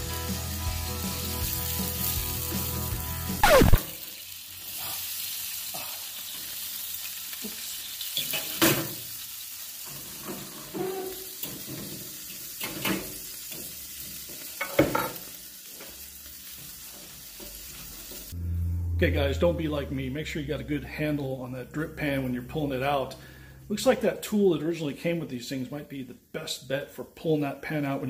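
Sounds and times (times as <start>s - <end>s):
grease sizzling: 0.2s - 18.4s.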